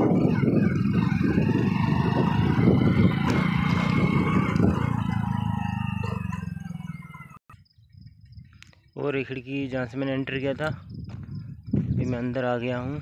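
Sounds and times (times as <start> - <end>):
motorcycle engine running: 0.0 - 8.2.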